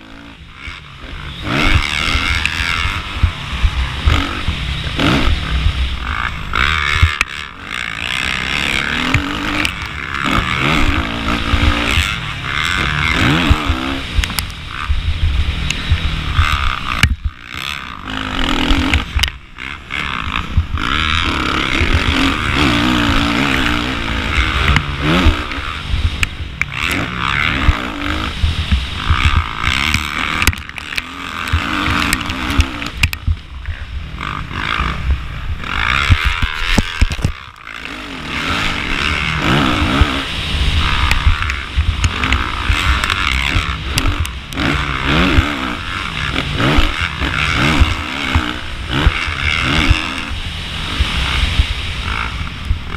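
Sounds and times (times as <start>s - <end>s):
dirt bike engine revving: 0.0s - 52.9s.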